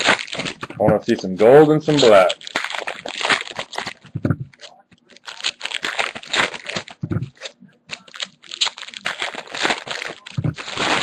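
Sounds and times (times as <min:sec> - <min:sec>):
cards being handled: 0:00.0 - 0:11.0
foil wrapper tearing and crinkling: 0:00.0 - 0:11.0
short low thumps: 0:04.1 - 0:04.6, 0:07.0 - 0:07.3.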